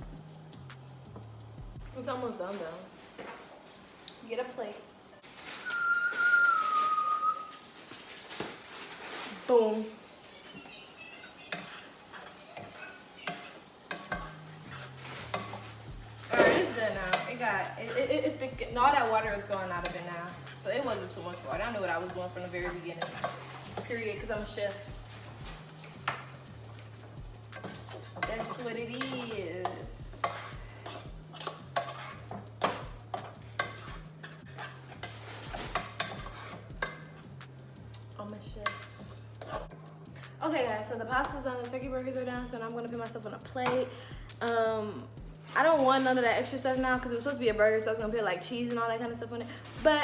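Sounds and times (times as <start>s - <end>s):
metal utensil scraping a pot: 10.7s - 37.3s, 38.6s - 40.0s.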